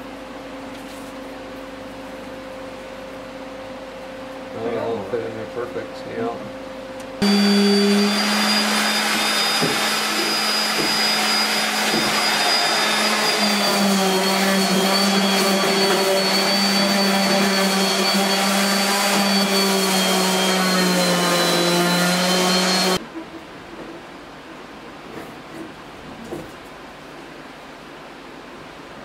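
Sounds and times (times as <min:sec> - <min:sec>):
electric sander on wood: 0:07.2 - 0:23.0.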